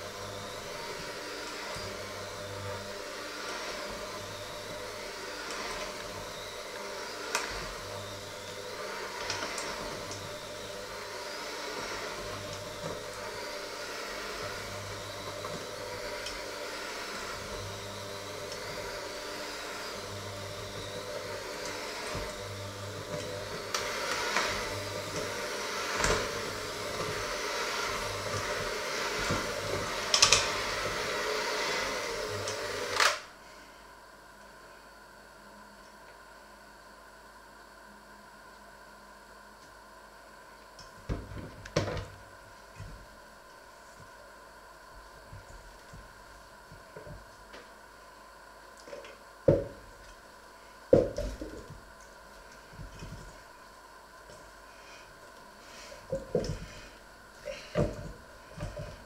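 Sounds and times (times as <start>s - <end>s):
electric hand mixer running: 0.0s - 33.4s, 40.8s - 59.0s.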